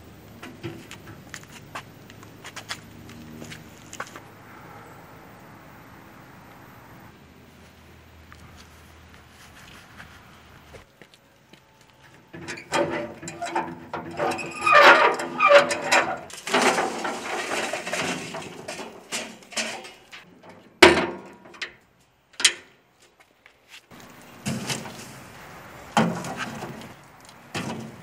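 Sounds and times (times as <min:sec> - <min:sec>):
charcoal rattling and scraping: 0:12.2 - 0:21.7, 0:23.8 - 0:28.0.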